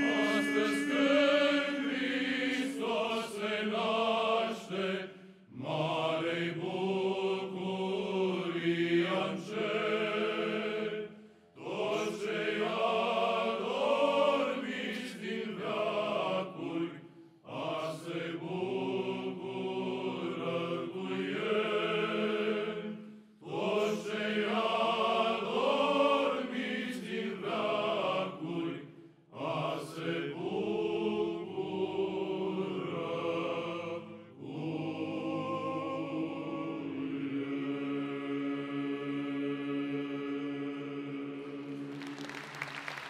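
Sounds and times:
low held drone: 0.0s - 2.9s
male choir singing a carol: 0.0s - 42.0s.

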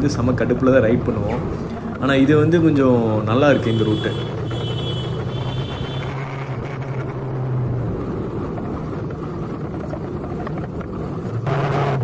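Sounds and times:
motorcycle engine running: 0.0s - 12.0s
road and wind noise: 0.0s - 12.0s.

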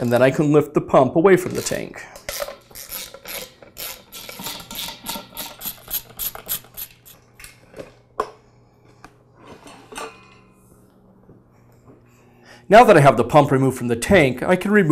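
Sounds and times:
socket ratchet clicking: 2.3s - 7.2s.

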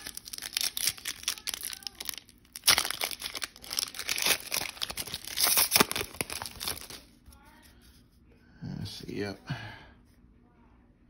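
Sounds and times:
foil wrapper crinkling and tearing: 0.0s - 7.2s.

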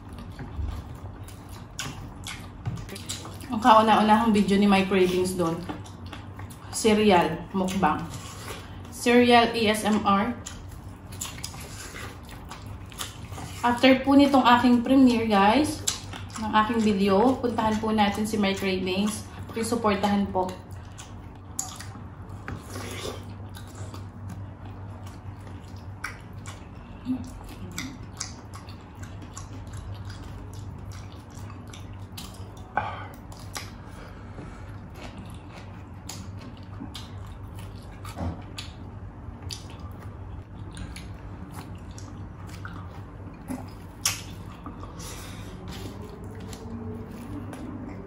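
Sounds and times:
low steady hum: 0.0s - 48.0s
people chewing food: 0.0s - 48.0s
wet lip smacks: 43.4s - 44.9s.

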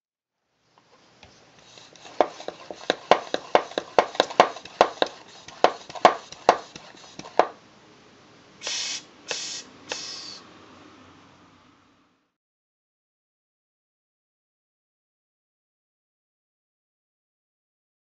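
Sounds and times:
short hisses: 8.6s - 10.5s.

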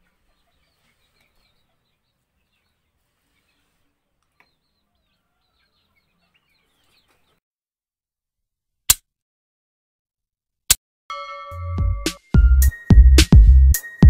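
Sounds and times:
birds chirping: 0.0s - 7.4s
chickens clucking: 0.0s - 7.4s.

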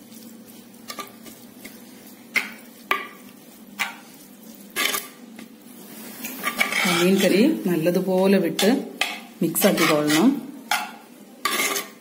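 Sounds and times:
metal spoon scraping clay pot: 6.4s - 7.4s, 8.6s - 12.0s.

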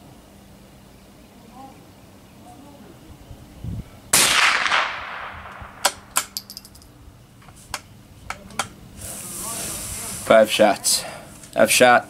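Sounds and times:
rifle shot: 4.1s - 6.4s.

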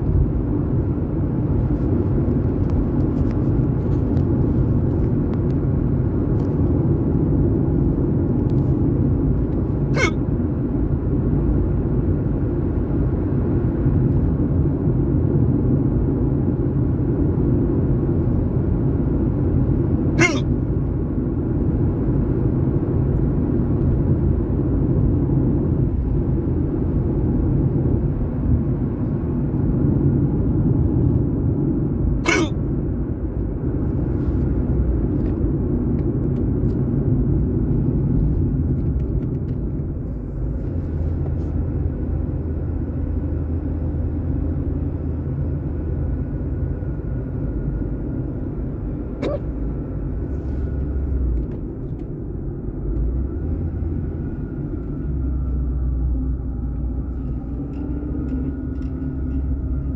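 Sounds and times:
car cabin rumble: 0.0s - 59.9s
sharp hiccups: 9.9s - 10.3s, 20.1s - 20.6s, 32.2s - 32.7s, 49.1s - 49.6s.

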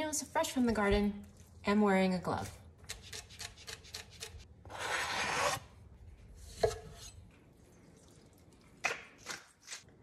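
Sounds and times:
knife scraping cutting board: 2.9s - 5.7s, 6.4s - 7.2s.

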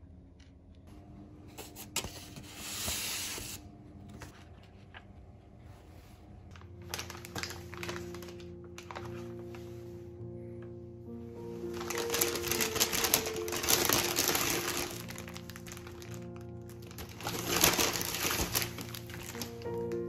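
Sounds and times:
soft background music: 0.8s - 20.0s
paper bag crinkling and rustling: 6.1s - 9.8s, 11.5s - 20.0s.

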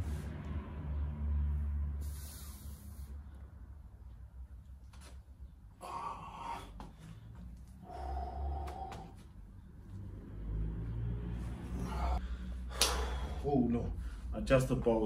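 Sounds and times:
man breathing heavily: 1.8s - 3.6s, 5.7s - 10.0s, 11.3s - 14.4s.

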